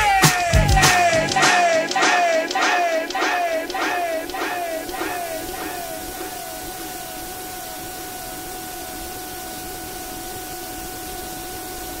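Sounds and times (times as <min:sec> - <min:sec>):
falling-pitch echo sound: 0:00.0 - 0:09.5
steady hiss: 0:00.0 - 0:12.0
held tone: 0:03.1 - 0:10.8.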